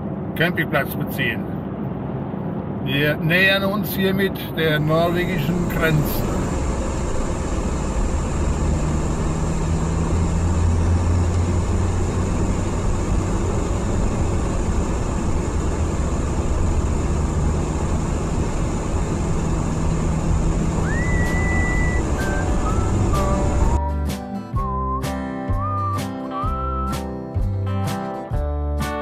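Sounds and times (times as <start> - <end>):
tyre and road noise: 0.0 - 24.1
van engine hum: 0.0 - 29.0
whistled note: 20.8 - 27.1.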